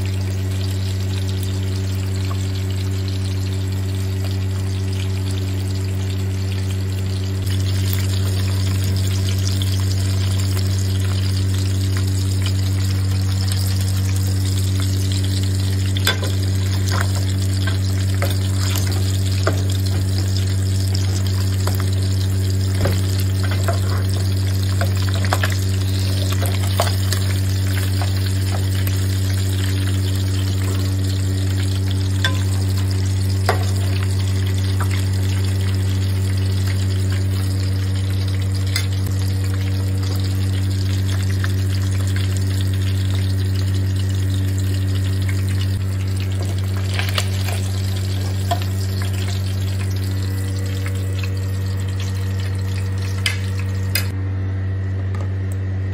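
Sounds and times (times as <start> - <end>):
chicken sizzling in hot oil: 0.0 - 54.2
steady low hum: 0.0 - 55.9
metal spoon scraping a pan: 23.4 - 27.2.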